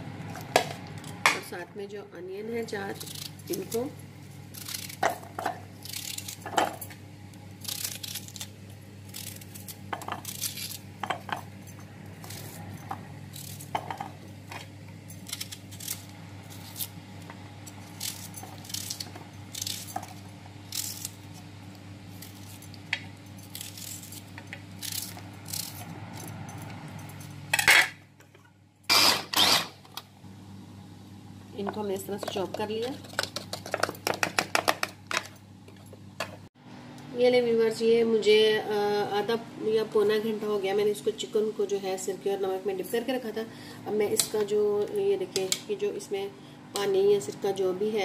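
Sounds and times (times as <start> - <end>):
steady low hum: 0.0 - 48.0
food chopper bursts: 28.9 - 29.8.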